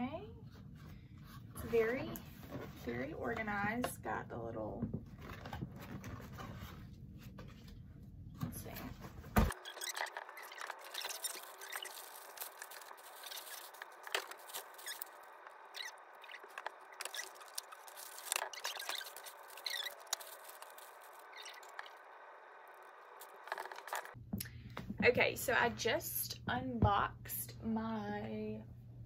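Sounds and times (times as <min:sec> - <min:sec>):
packaging rustling and crinkling: 0:05.1 - 0:07.8, 0:08.6 - 0:22.1
small clicks and crackles: 0:09.5 - 0:22.0.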